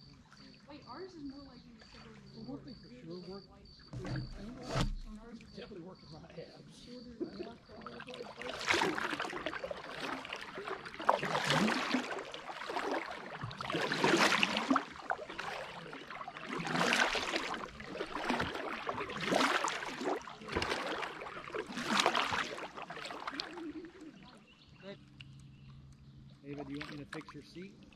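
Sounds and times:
kayak paddle strokes in water: 3.9s - 5.4s, 7.4s - 24.6s, 26.5s - 27.9s.

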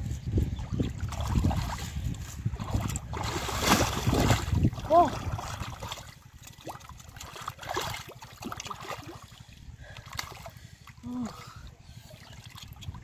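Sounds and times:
water trickling and gurgling: 0.4s - 13.0s
hands splashing in muddy water: 0.6s - 9.4s.

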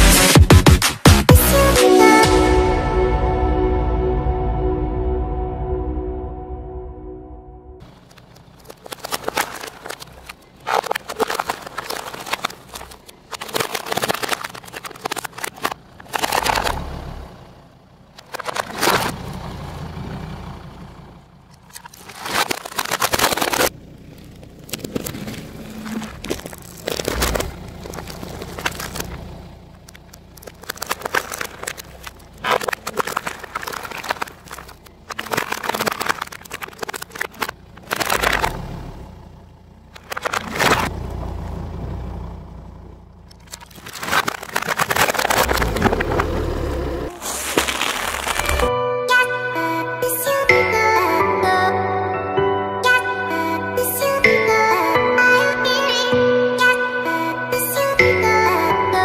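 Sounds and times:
car engine running: 0.0s - 48.7s
plastic toy cracking under tyre: 7.8s - 17.1s, 18.1s - 19.2s, 21.5s - 38.8s, 39.9s - 41.0s, 43.2s - 48.7s
gravel crunching: 7.8s - 48.8s.

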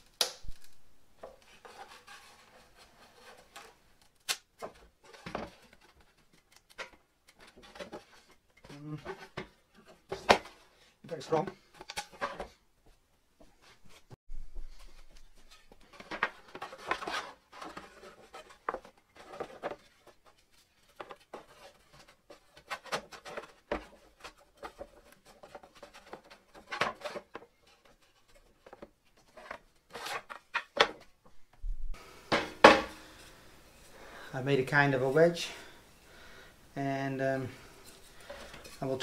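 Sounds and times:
wood knocking and scraping on wood: 4.6s - 33.2s.

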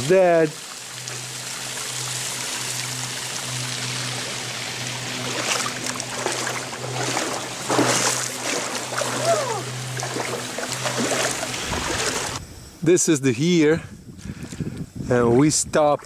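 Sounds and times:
rushes of water: 0.0s - 12.4s
water trickling and running: 0.0s - 12.4s
steady low hum: 0.0s - 16.0s.

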